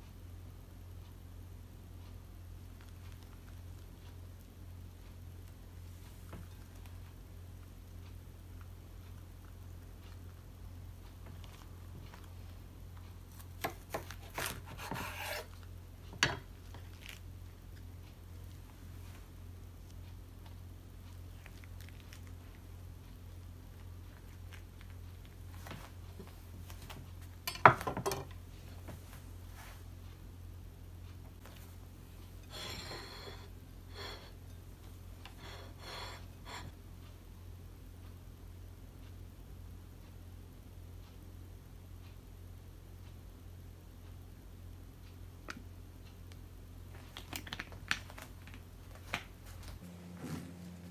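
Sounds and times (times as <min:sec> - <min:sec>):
knife rasping through food: 0:14.2 - 0:15.6
ceramic plate scraping on wood: 0:14.7 - 0:15.6.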